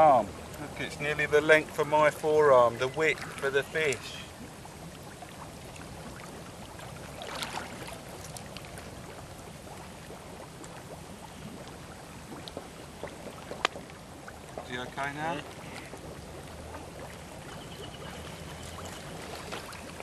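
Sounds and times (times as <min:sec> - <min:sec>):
water sloshing and lapping: 0:00.0 - 0:20.0
water splash: 0:05.3 - 0:09.2, 0:18.2 - 0:20.0.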